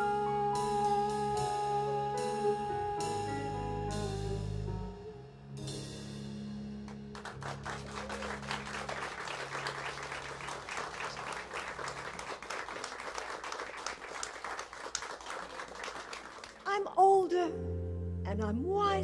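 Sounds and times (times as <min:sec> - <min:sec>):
audience applauding: 0:06.9 - 0:16.8.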